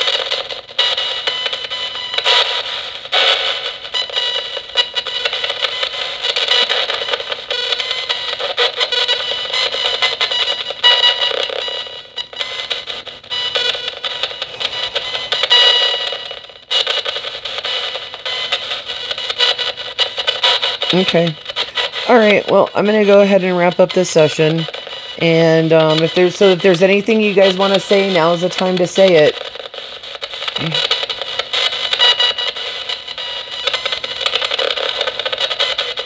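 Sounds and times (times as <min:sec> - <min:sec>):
choppy radio static sweep: 0:12.8 - 0:36.0.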